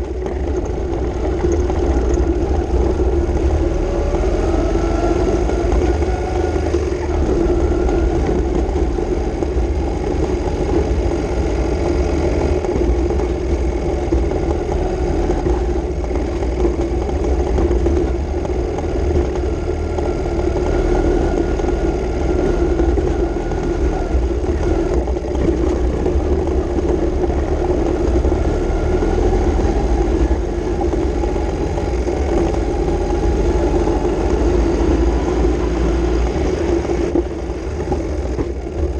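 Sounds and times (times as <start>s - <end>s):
low wind rumble: 0.0s - 38.9s
motorcycle engine running: 0.0s - 38.9s.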